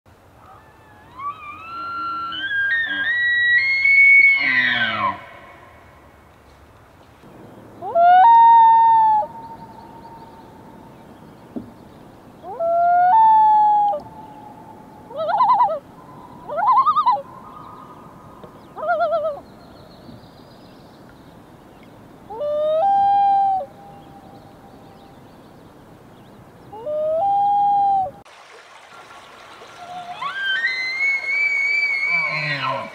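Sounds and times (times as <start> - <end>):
loons wailing: 0.4 - 5.5, 29.8 - 32.9.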